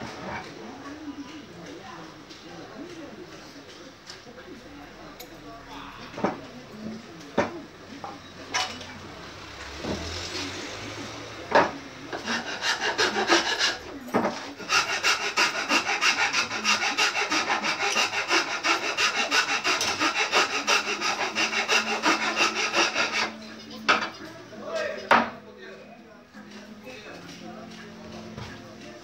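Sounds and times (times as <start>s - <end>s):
hand tool scraping wood: 12.1s - 23.4s.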